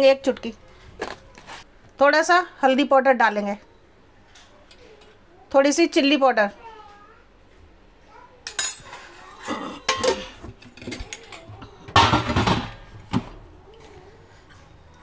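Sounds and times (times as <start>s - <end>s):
spoon clinking on metal tins: 8.5s - 9.0s, 9.9s - 11.4s.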